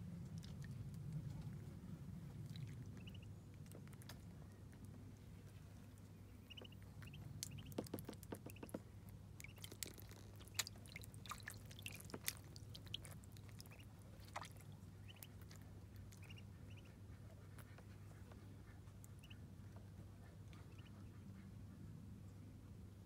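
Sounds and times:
steady low hum: 0.0s - 7.7s
ducklings peeping: 2.5s - 4.1s, 6.3s - 8.7s, 9.4s - 21.6s
small water splashes: 6.5s - 16.4s.

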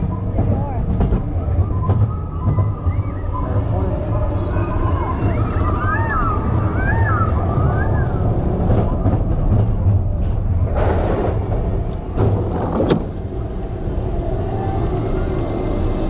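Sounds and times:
roller coaster rumbling on track: 0.0s - 16.0s
rush of noise: 13.1s - 16.0s.

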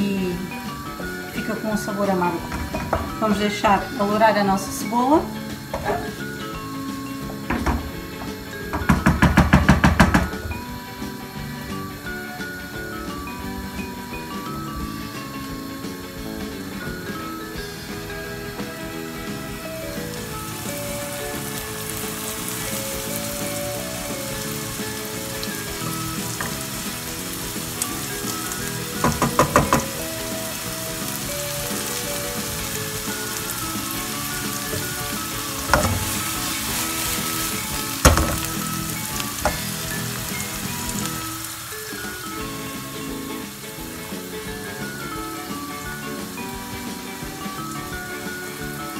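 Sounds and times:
onion sizzling in frying pan: 0.0s - 48.9s
knocks: 2.4s - 3.2s, 7.3s - 10.6s, 29.0s - 30.0s, 38.0s - 38.6s.

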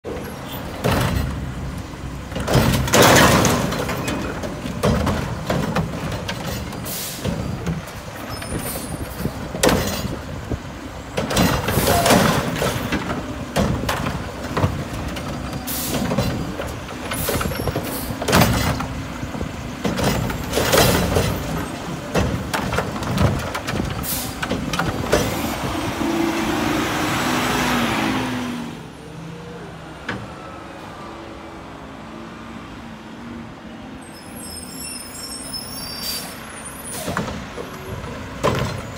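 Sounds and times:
garbage truck engine running: 0.1s - 27.0s
trash carts banging: 0.1s - 28.2s, 36.8s - 38.9s.

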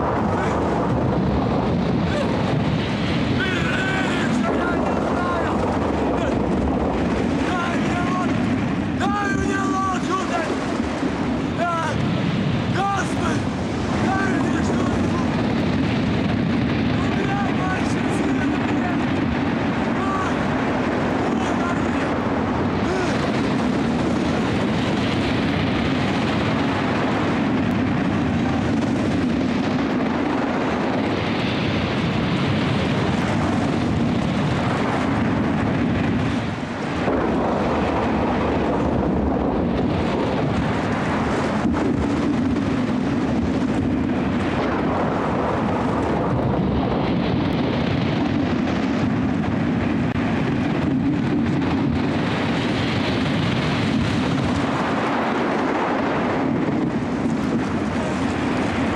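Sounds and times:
heavy surf: 0.0s - 58.9s
storm wind: 0.0s - 58.9s.

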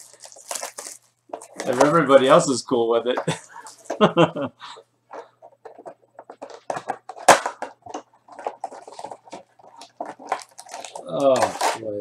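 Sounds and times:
foil wrapper crinkling and tearing: 0.0s - 2.0s, 8.3s - 12.0s.

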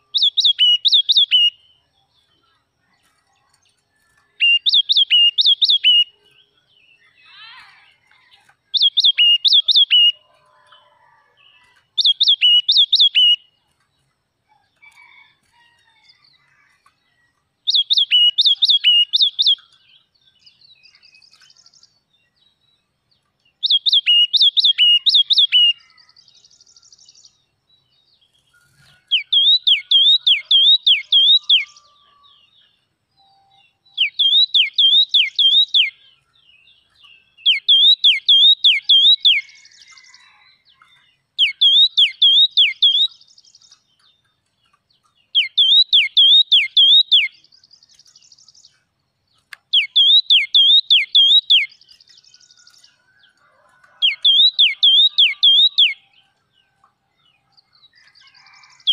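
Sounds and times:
songbird whistling: 0.0s - 1.7s, 4.4s - 6.5s, 8.7s - 10.2s, 12.0s - 13.5s, 17.7s - 19.7s, 23.6s - 26.0s, 29.1s - 31.9s, 33.2s - 36.0s, 37.4s - 40.4s, 41.4s - 43.7s, 45.3s - 47.5s, 49.7s - 52.6s, 53.9s - 56.1s.

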